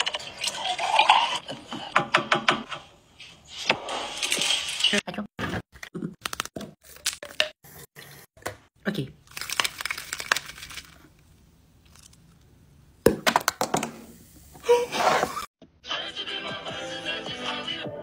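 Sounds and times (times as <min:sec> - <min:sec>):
packaging crackling: 0:09.3 - 0:11.1.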